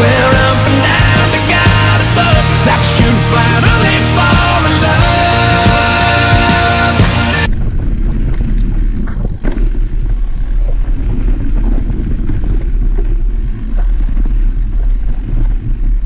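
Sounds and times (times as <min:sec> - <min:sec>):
wind rumble on microphone: 0:07.5 - 0:16.0.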